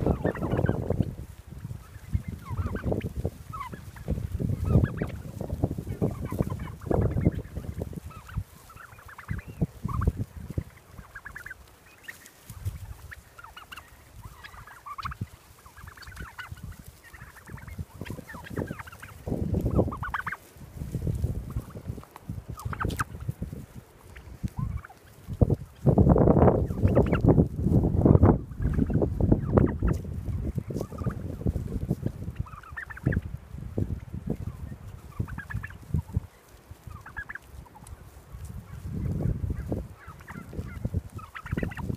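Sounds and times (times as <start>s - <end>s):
turkeys calling: 0.0s - 41.9s.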